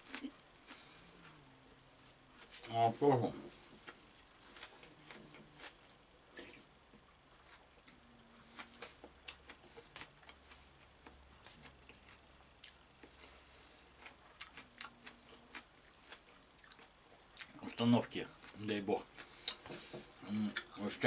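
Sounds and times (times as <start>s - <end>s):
man eating soup and chewing: 0.0s - 21.0s.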